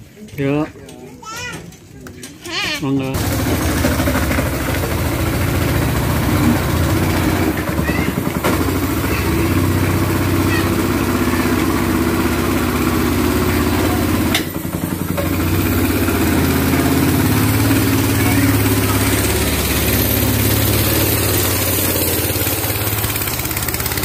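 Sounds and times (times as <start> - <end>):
motorcycle engine running at low speed: 3.2 - 24.0.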